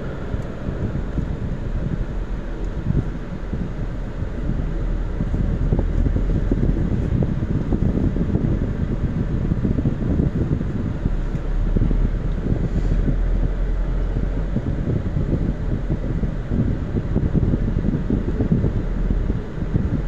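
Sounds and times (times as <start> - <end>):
road noise: 0.0 - 20.0
vehicle engine rumble: 0.0 - 20.0.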